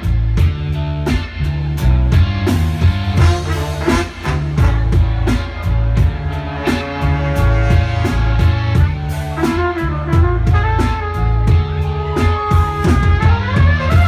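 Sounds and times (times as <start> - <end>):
bass: 0.0 - 14.0
drum kit: 0.0 - 14.0
electric guitar: 0.0 - 14.0
trumpet and trombone: 3.2 - 14.0.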